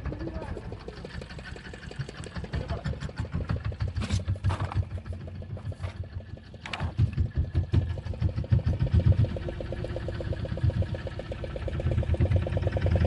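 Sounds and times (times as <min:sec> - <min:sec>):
boat engine thudding: 0:00.0 - 0:13.0.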